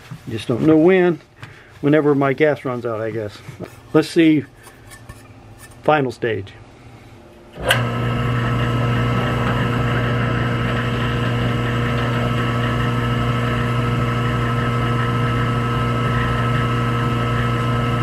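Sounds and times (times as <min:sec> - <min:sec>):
drill press motor humming: 0:07.5 - 0:18.0.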